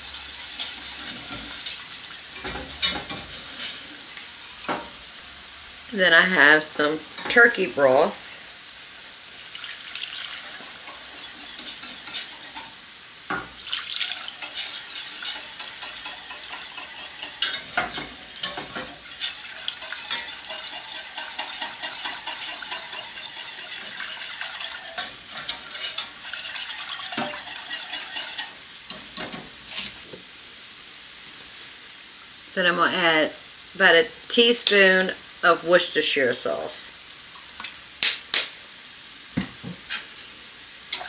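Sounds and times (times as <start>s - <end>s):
utensil clinking on pan: 0.0s - 3.7s, 4.6s - 5.0s, 10.8s - 13.6s, 14.3s - 30.0s
utensil scraping saucepan: 0.0s - 5.1s, 5.9s - 8.5s, 9.4s - 30.2s
light sizzle: 0.0s - 41.0s.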